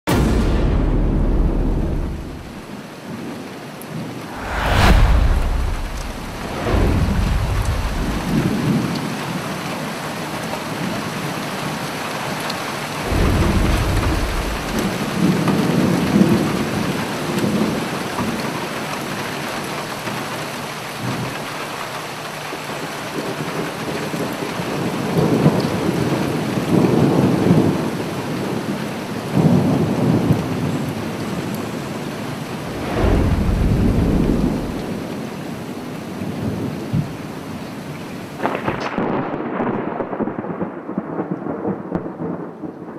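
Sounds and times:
steady rain: 0.0s - 42.9s
thunder rumbles: 0.1s - 2.8s, 4.3s - 9.4s, 12.8s - 17.8s, 32.4s - 35.6s, 38.4s - 42.6s.

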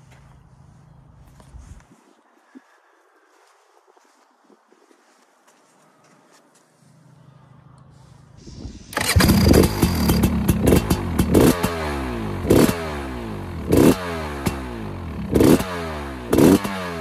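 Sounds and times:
two-stroke engine idling and revving: 8.7s - 17.0s.

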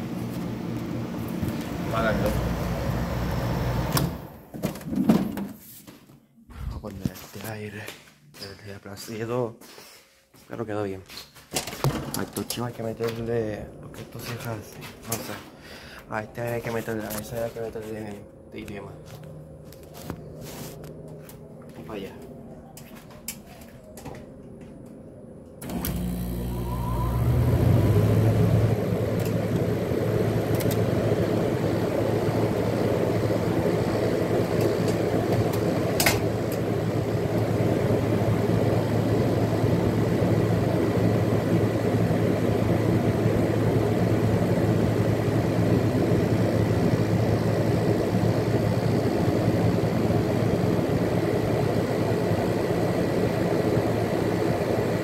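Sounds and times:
air conditioner humming: 0.0s - 4.8s, 5.5s - 55.0s.

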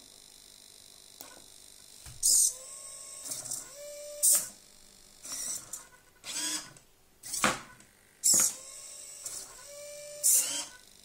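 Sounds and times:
servo motors whirring: 5.2s - 7.5s, 8.2s - 10.9s.

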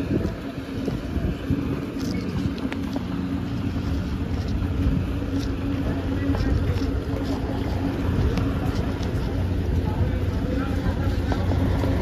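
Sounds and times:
idling engines drone: 0.0s - 12.0s.

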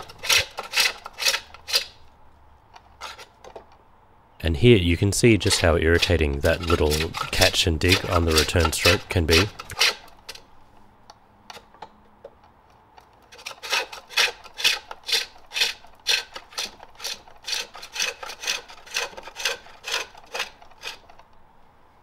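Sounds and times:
hook tool scraping wood on lathe: 0.0s - 2.1s, 2.8s - 3.6s, 5.2s - 10.4s, 13.2s - 21.2s.

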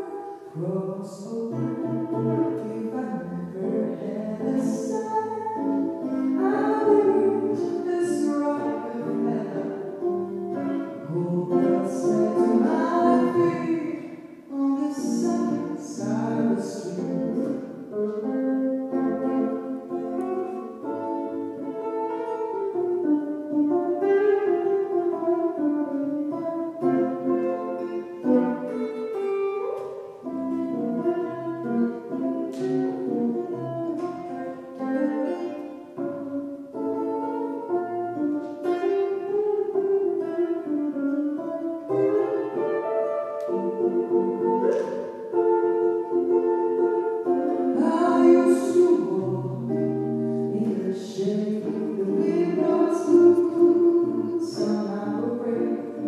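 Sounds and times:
woman singing into a microphone: 0.0s - 23.2s, 43.4s - 56.0s
electric guitar: 0.0s - 56.0s.

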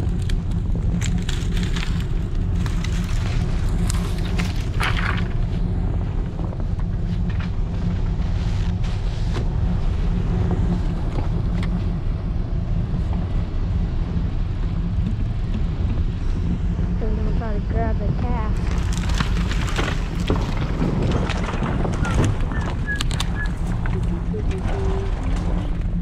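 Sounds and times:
truck engine idling: 0.0s - 26.0s
branches dragged over snow: 0.9s - 5.8s, 18.5s - 23.9s.

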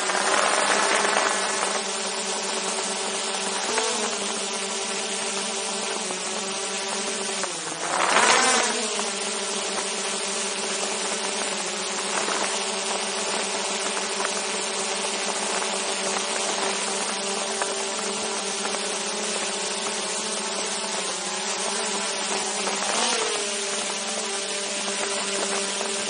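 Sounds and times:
drone propellers buzzing: 0.0s - 26.0s.

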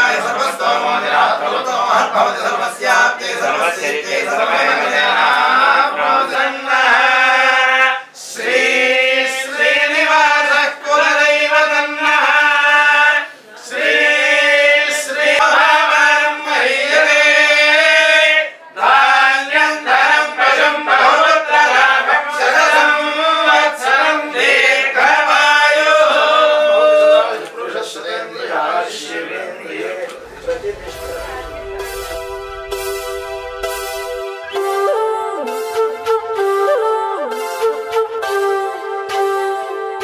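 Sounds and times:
men chanting together: 0.0s - 31.7s.

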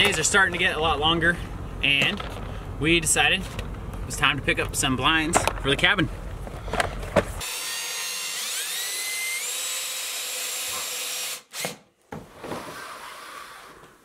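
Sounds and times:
cordless drill motor whine: 7.4s - 11.7s.

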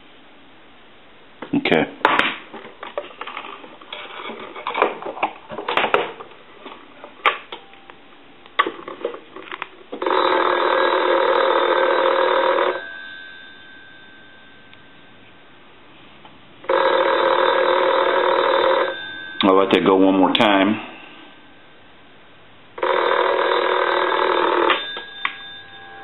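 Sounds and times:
desk telephone ringing: 9.9s - 15.5s, 16.6s - 21.7s, 22.8s - 26.0s.

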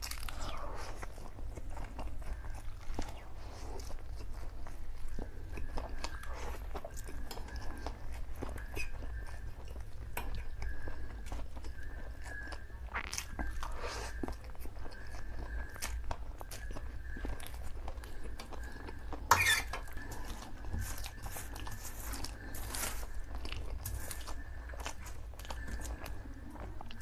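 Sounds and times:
wet chewing smacks: 0.0s - 27.0s.

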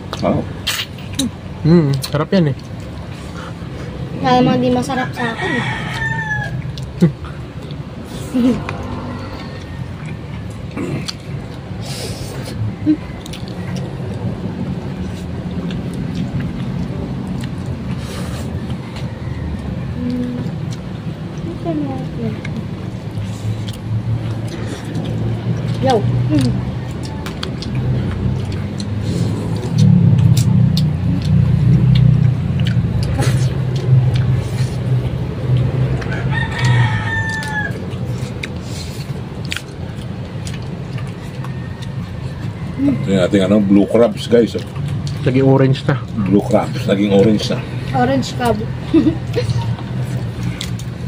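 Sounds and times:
rooster crowing: 5.0s - 6.8s, 8.5s - 10.6s, 18.5s - 20.0s, 35.9s - 38.3s, 41.2s - 43.9s.

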